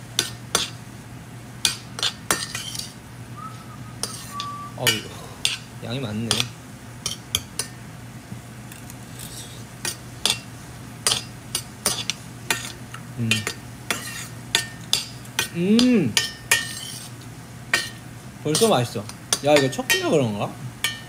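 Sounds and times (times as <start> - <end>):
faint sizzle: 0.0 - 21.0
steady low hum: 0.0 - 21.0
utensil scraping a frying pan: 1.6 - 3.0, 4.0 - 5.7, 8.7 - 15.5, 16.2 - 20.1
person humming mm: 13.2 - 13.4, 15.5 - 16.2.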